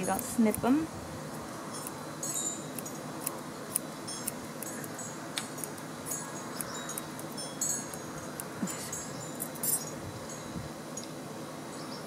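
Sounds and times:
scissors snipping hair: 0:00.0 - 0:00.8, 0:02.7 - 0:07.4.

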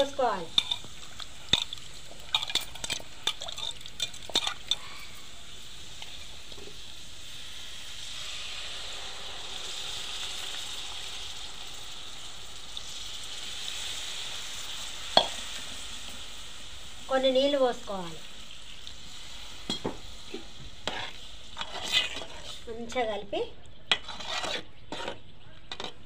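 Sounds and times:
fish frying in oil: 0:00.0 - 0:23.2
juice pouring into pot: 0:00.9 - 0:04.9.

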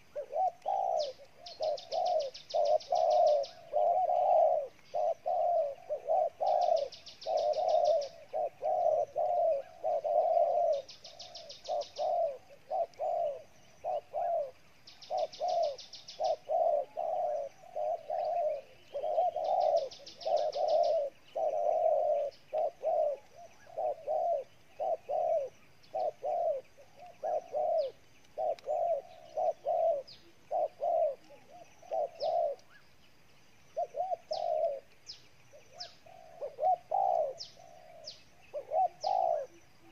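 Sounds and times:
doves cooing: 0:00.0 - 0:33.0, 0:33.6 - 0:39.9.

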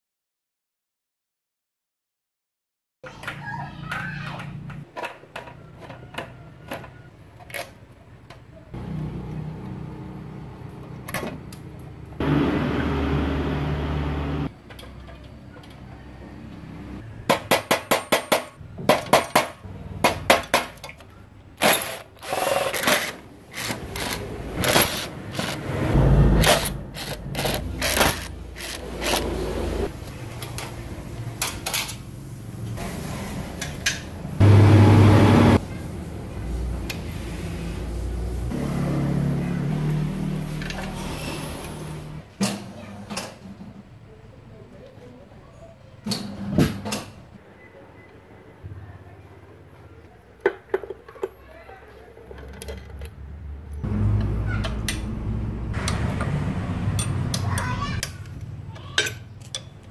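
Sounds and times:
metal tools clinking and rattling: 0:21.6 - 0:25.6, 0:26.4 - 0:29.3.

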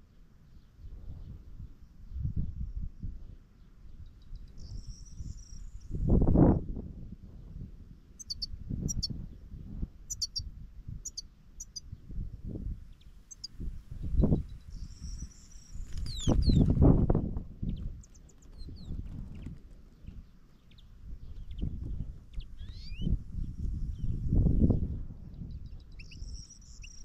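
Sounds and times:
wind rumbling on microphone: 0:00.6 - 0:27.0
songbirds chirping: 0:08.1 - 0:12.1, 0:12.8 - 0:16.8, 0:17.5 - 0:27.0.

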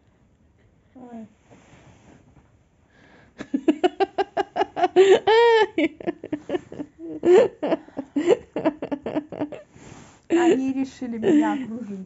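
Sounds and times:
woman laughing heartily: 0:03.4 - 0:09.7, 0:11.2 - 0:11.7.

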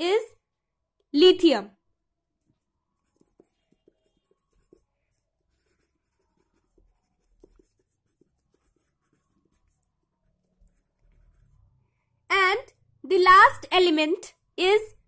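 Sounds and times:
pencil scratching on paper: 0:02.4 - 0:11.8.

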